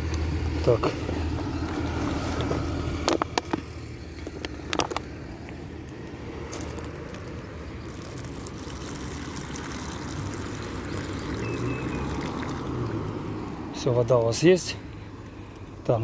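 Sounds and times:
distant traffic rumble: 0.0 - 16.0
plastic bottle crinkling: 6.6 - 11.4
water pouring into plastic cup: 7.8 - 13.2.

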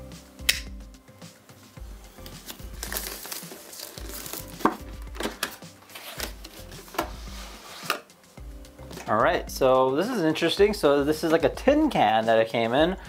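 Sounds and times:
wrap crinkling and tearing: 2.4 - 6.7
cardboard clicks and scrapes: 2.4 - 8.1
cardboard sleeve sliding off: 5.9 - 8.0.

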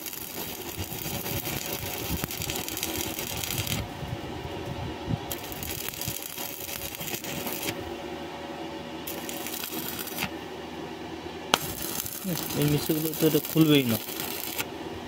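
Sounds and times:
welding arc crackling: 0.0 - 4.0, 5.3 - 7.8, 9.1 - 10.4, 11.5 - 14.7.

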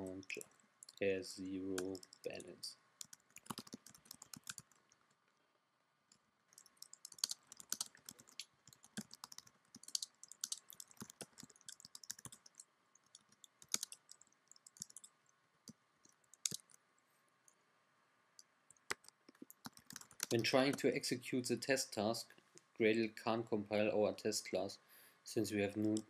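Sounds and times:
typing on computer keyboard: 1.8 - 2.4, 3.0 - 4.9, 6.5 - 15.2, 16.3 - 16.8, 18.8 - 20.8.

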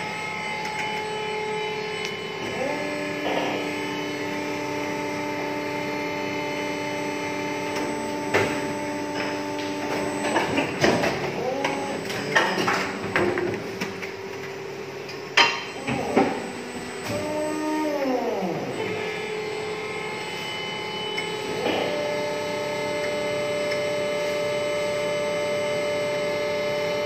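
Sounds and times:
hydraulic pump motors whining: 0.0 - 27.0.

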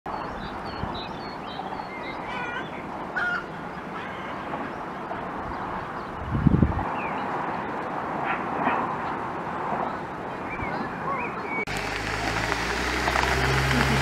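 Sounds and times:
birds chirping: 9.8 - 14.0.

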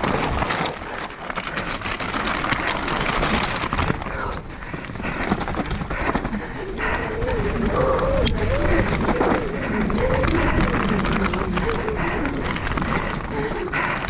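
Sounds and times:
bike rattling and knocking: 0.0 - 14.0
bike tyres crunching over stones: 0.0 - 14.0
wind rushing over microphone: 3.6 - 13.9.

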